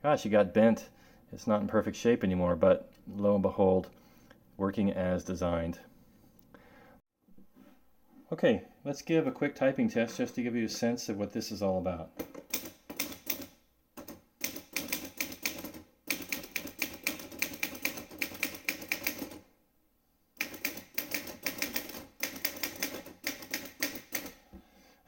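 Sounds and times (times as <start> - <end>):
typewriter typing: 12.3 - 19.4, 20.4 - 24.4.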